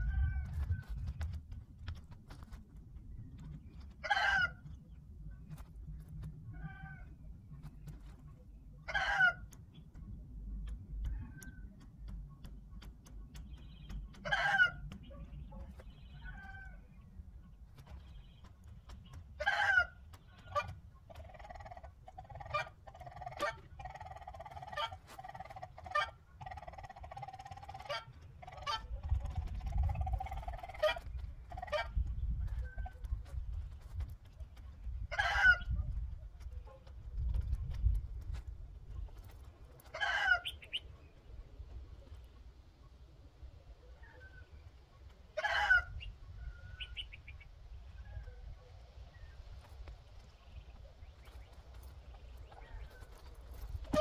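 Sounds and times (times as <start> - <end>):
chickens clucking: 6.5 - 54.0.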